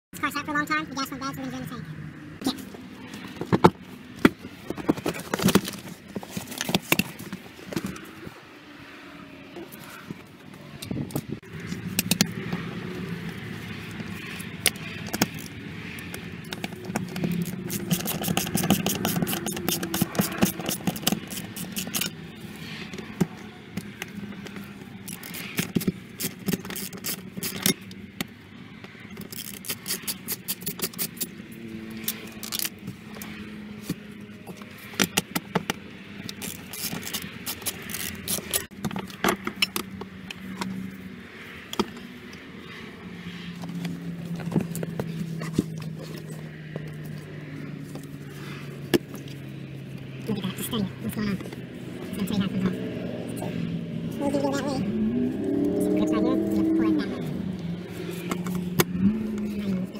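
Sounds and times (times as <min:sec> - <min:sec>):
metal tools clicking and scraping: 0:14.0 - 0:22.2, 0:23.8 - 0:28.0, 0:29.1 - 0:33.4, 0:36.2 - 0:40.8.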